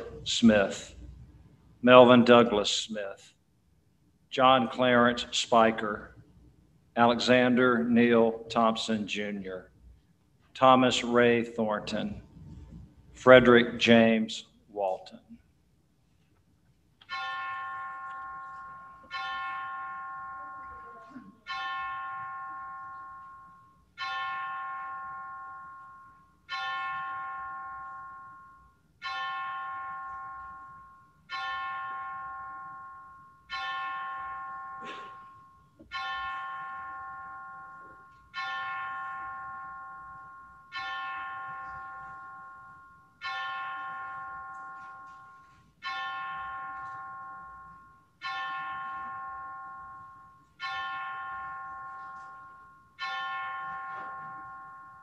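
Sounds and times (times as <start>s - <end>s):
bell tolling: 17.1s - 55.0s.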